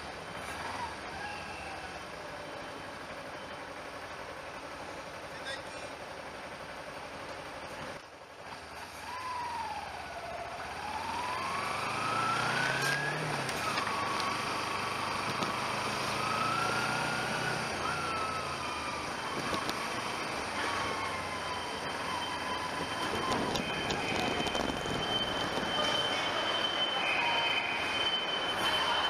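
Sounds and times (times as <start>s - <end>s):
vehicle engine droning: 0.0s - 29.0s
thin whining tone: 11.2s - 29.0s.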